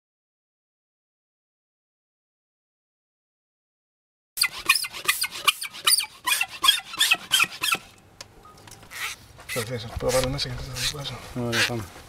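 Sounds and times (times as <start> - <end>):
hand pump squeaky strokes: 4.4 - 8.0, 8.9 - 11.8.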